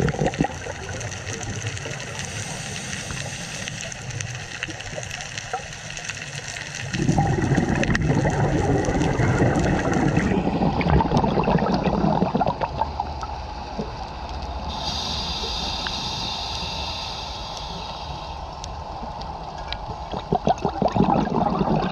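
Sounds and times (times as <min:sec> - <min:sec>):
scuba exhaust bubbles gurgling: 0:00.0 - 0:14.0, 0:19.9 - 0:21.9
faint scattered clicks: 0:00.9 - 0:07.0, 0:14.1 - 0:20.0.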